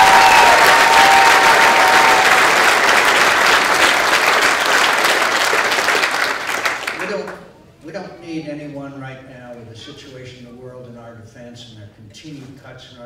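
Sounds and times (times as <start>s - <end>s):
cheering calls: 0.0s - 6.6s
audience applauding: 0.0s - 7.4s.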